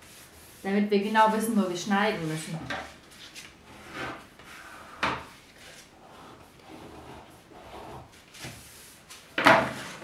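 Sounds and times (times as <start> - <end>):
pencil scraping on paper: 6.0 - 8.2.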